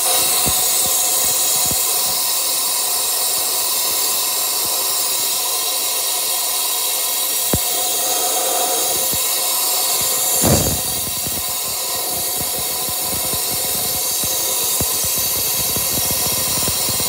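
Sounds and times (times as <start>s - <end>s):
compressed air hissing: 0.0s - 17.0s.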